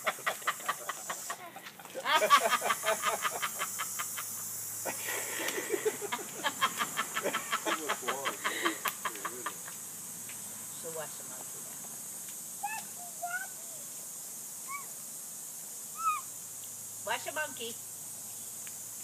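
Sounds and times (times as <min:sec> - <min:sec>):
water hissing from garden hose: 0:00.0 - 0:19.0
toddler babbling: 0:12.6 - 0:13.9, 0:14.6 - 0:14.9, 0:16.0 - 0:16.3.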